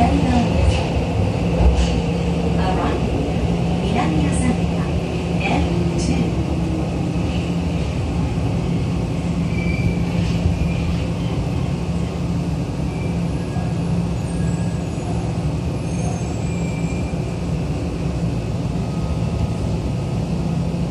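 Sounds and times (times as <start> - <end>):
subway wheels rumbling on rail: 0.0 - 20.9
faint high squeals: 9.4 - 10.9.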